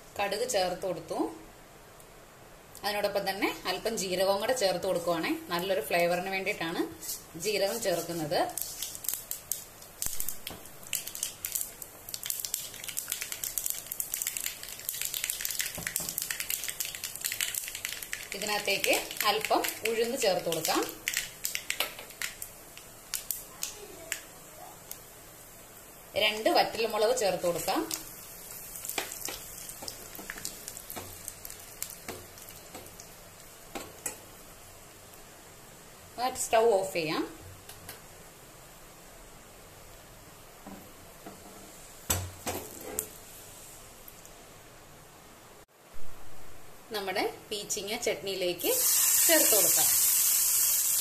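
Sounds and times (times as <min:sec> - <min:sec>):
seeds spluttering in hot oil: 0:07.0 - 0:35.4, 0:48.6 - 0:51.0.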